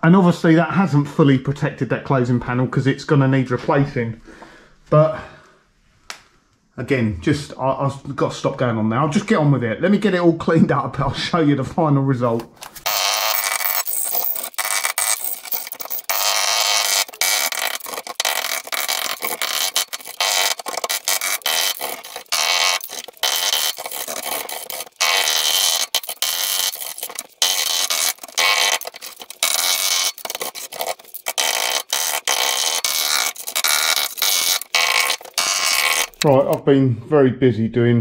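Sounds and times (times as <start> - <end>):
scraper scraping steel: 12.8 - 36.6.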